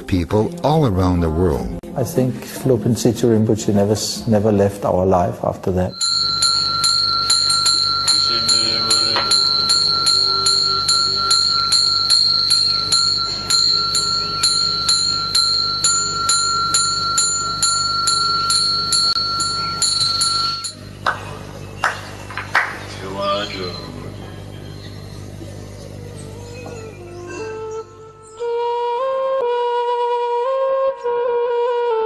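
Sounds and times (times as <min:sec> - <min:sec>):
small bell ringing rapidly: 0:05.9 - 0:20.9.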